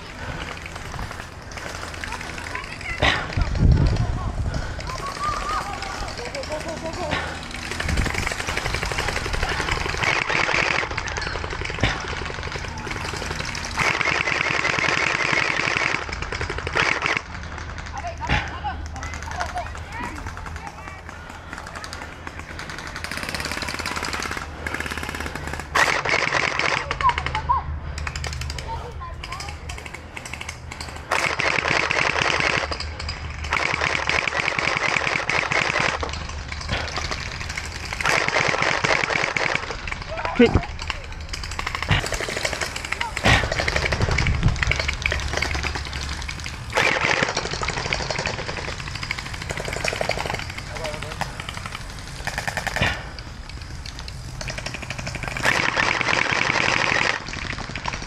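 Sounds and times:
blaster motors running: 0.0 - 14.8
gel blaster rapid-fire clatter: 0.0 - 58.0
gel blasters firing rapidly: 36.9 - 53.1.

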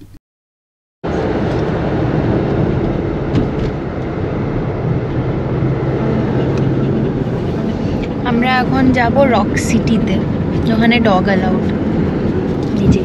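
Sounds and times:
car road and engine noise: 1.0 - 13.0.

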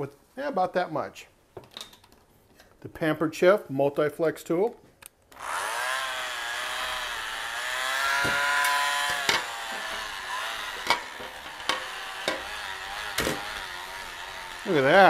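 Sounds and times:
electric mixer motor whining: 5.3 - 15.0.

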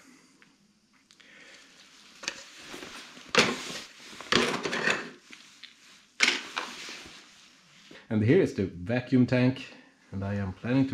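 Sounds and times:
parts clattering in cardboard box: 3.3 - 5.2.

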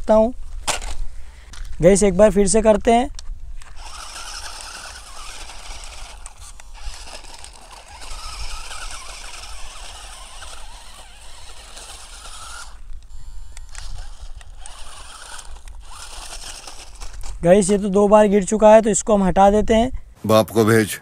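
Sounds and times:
small electric motor whirring: 3.5 - 18.2.

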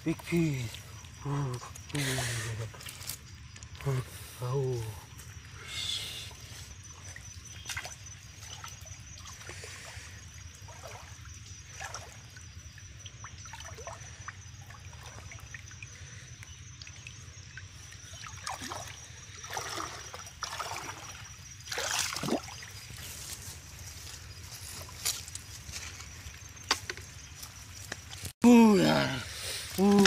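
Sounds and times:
water splashes: 6.3 - 23.5
water dripping from a net: 7.0 - 23.0.

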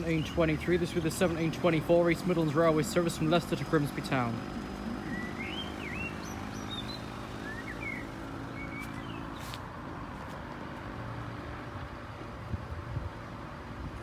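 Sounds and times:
vehicle engine idling: 0.0 - 14.0
bird chirps: 5.0 - 9.6.

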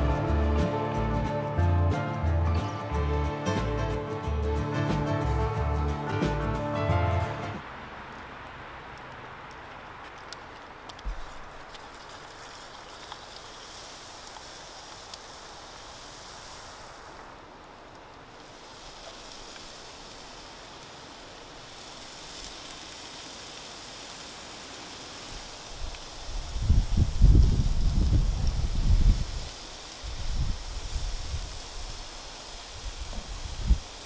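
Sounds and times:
grill hissing: 11.0 - 34.0
wind rumbling on microphone: 25.4 - 34.0.

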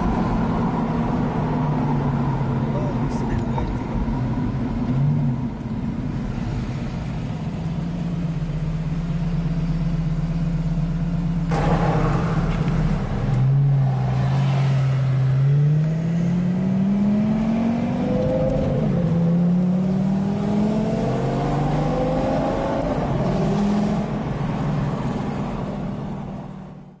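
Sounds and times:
sports car engine accelerating: 0.0 - 25.6.

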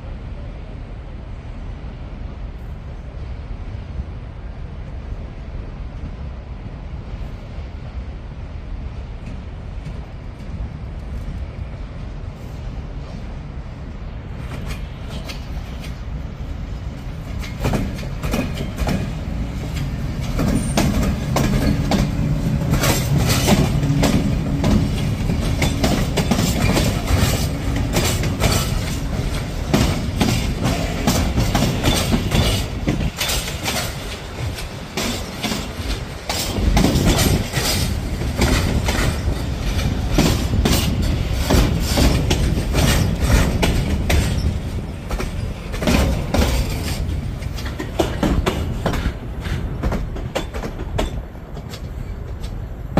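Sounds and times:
locomotive hum: 0.0 - 52.9
train wheels clacking over rail joints: 16.9 - 52.9.

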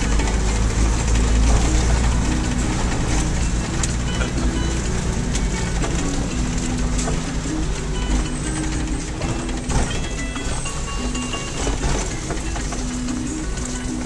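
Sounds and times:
engine and tyres rumbling: 0.0 - 14.0
rattles and knocks from bumps: 0.0 - 14.0.

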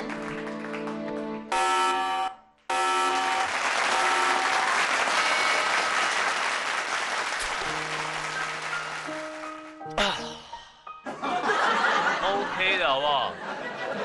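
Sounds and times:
audience applauding: 0.0 - 1.5, 2.7 - 9.8
background music: 0.0 - 2.3, 7.4 - 14.0.

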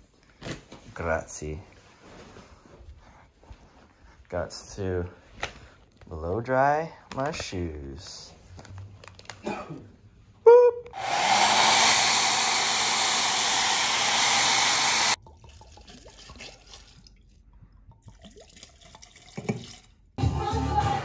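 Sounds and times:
hair dryer blowing: 10.9 - 15.2
liquor pouring over ice: 18.0 - 20.0
music: 20.2 - 21.0.

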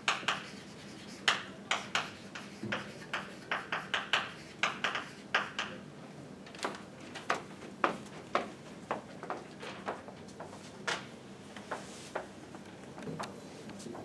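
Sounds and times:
chalk scratching on blackboard: 0.1 - 5.7.

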